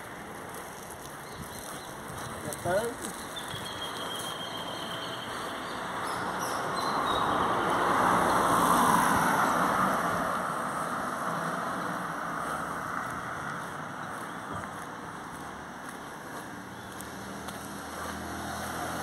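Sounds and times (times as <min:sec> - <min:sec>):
car passing by: 0:03.9 - 0:19.0.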